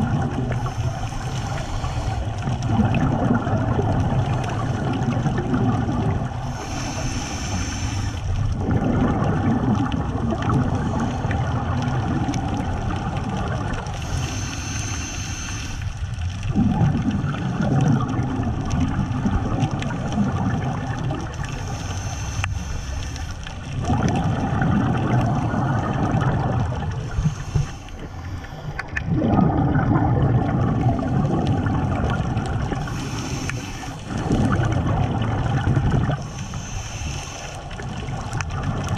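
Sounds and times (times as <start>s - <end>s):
exhaled bubbles rumbling: 0.0s - 38.9s
regulator inhale hiss: 0.5s - 2.6s, 6.4s - 8.4s, 13.9s - 16.2s, 21.4s - 23.6s, 27.0s - 28.9s, 32.8s - 34.2s, 36.1s - 38.1s.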